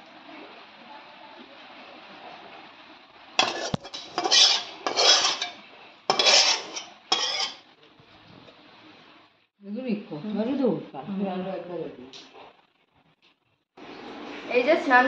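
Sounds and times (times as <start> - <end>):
metal spatula clanking on bowl: 3.4 - 7.6
spatula scraping a wok: 3.4 - 7.6.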